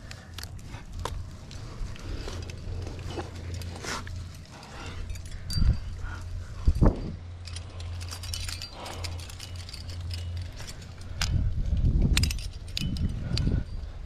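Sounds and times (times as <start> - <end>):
low muffled rumbling: 0.0 - 14.0
metal carabiners jangling: 0.0 - 14.0
small sharp metal clicks: 6.7 - 13.7.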